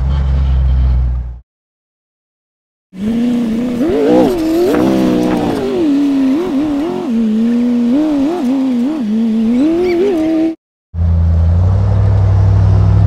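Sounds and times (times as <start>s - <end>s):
buggy engine revving: 3.0s - 13.0s.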